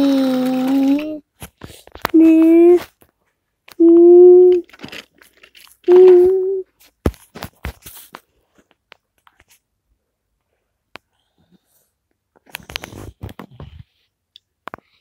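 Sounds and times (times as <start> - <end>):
rustling: 4.4 - 9.7.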